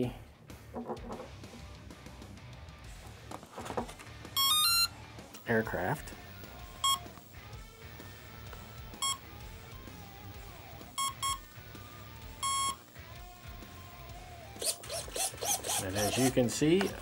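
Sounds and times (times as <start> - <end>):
electronic beeps: 4.4 - 4.9, 6.8 - 7.1, 8.9 - 9.3, 11.0 - 11.5, 12.4 - 12.8.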